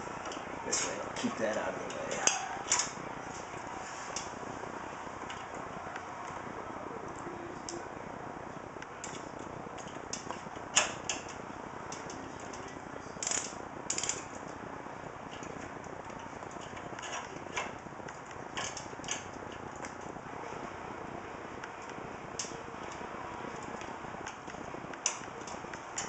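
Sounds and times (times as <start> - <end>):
steady hiss: 0.0 - 26.0
screwdriver clicks and scrapes: 15.4 - 17.8.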